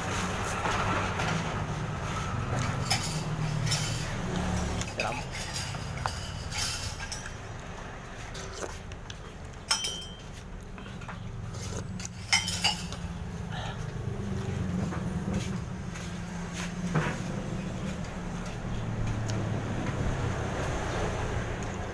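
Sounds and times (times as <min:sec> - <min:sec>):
cutlery clinking on ceramic bowl: 0:09.6 - 0:10.4, 0:12.0 - 0:13.1.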